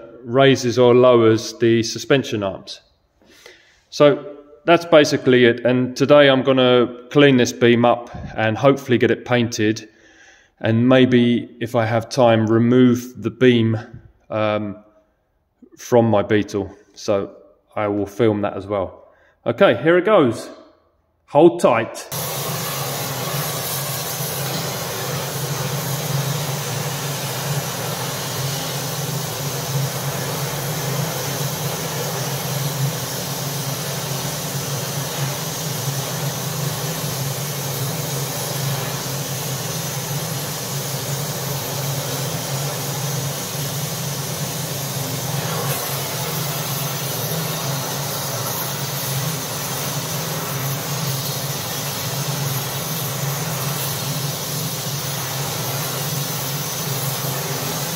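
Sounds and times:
gas torch flame roaring: 0:22.1 - 0:57.9.

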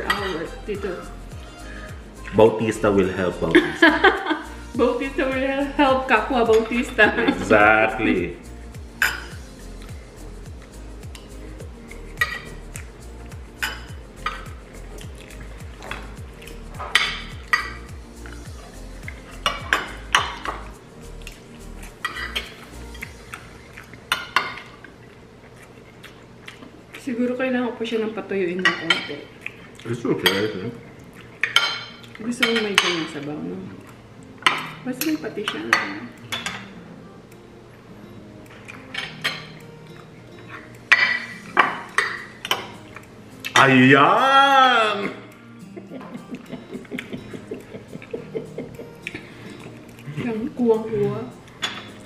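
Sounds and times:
cutlery clinking on ceramic plates: 0:00.0 - 0:00.5, 0:09.0 - 0:09.4, 0:12.2 - 0:12.6, 0:13.6 - 0:14.6, 0:15.8 - 0:17.9, 0:19.1 - 0:20.7, 0:22.0 - 0:22.6, 0:28.6 - 0:29.2, 0:30.2 - 0:30.7, 0:31.4 - 0:33.2, 0:34.4 - 0:36.8, 0:38.5 - 0:43.8, 0:51.6 - 0:52.0.

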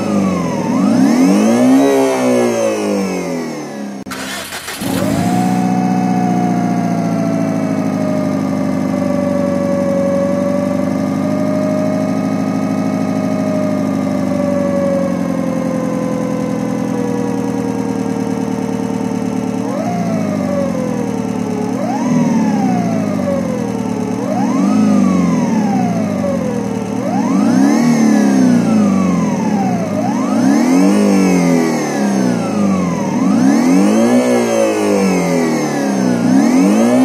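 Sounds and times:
engine revving: 0:00.0 - 0:06.0, 0:27.0 - 0:37.0
simulated car engine idling: 0:04.0 - 0:27.3.

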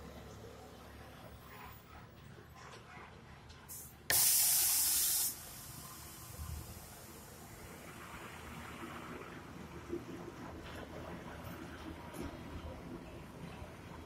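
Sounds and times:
truck air brakes hissing: 0:03.7 - 0:07.6.

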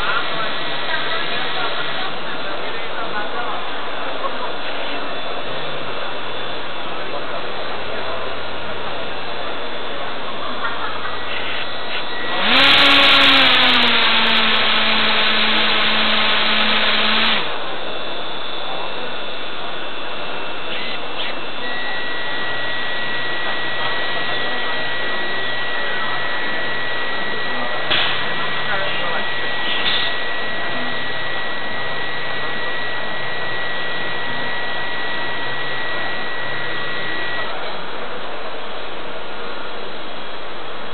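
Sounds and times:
exhibition hall background noise: 0:00.0 - 0:40.9
propeller motors humming: 0:00.0 - 0:40.9.

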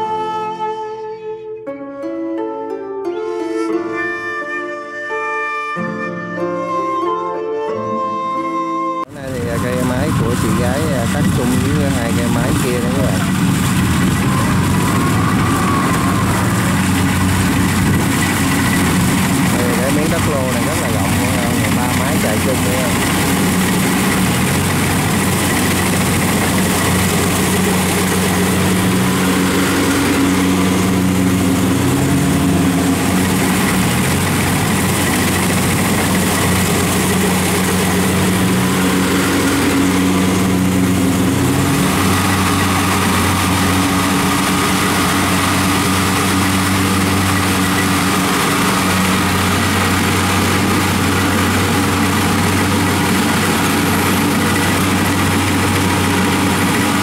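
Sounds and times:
combine harvester engine running: 0:09.0 - 0:57.0.

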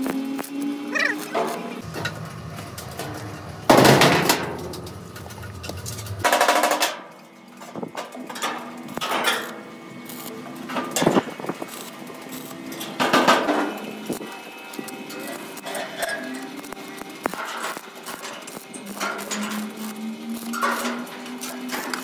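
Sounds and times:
welding arc crackle: 0:00.0 - 0:07.0, 0:08.2 - 0:22.0
low hum: 0:01.8 - 0:06.3.

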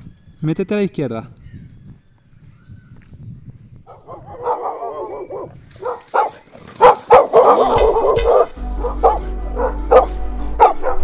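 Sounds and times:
dog barking sharply: 0:03.9 - 0:11.0
music with low bass: 0:07.8 - 0:11.0.

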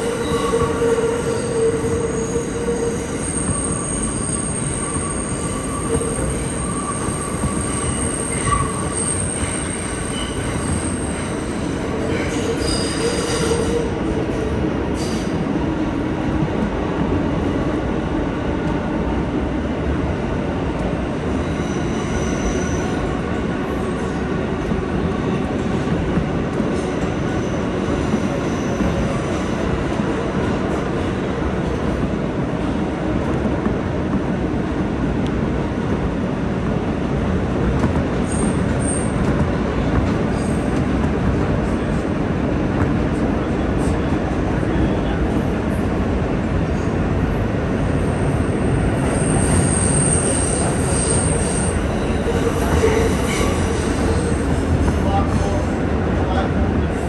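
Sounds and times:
subway train wheels rumbling: 0:00.0 - 0:57.0
high wheel squeals: 0:00.1 - 0:11.4, 0:12.2 - 0:13.9, 0:21.5 - 0:23.0, 0:48.2 - 0:54.5.

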